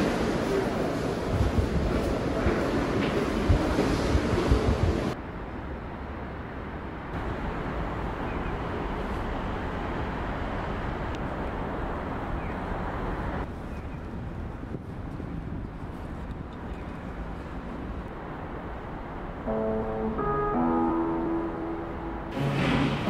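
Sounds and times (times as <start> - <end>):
wind on microphone: 0.0 - 5.2, 13.4 - 18.1
city background hum: 0.0 - 23.0
underground passage ambience: 0.0 - 23.0.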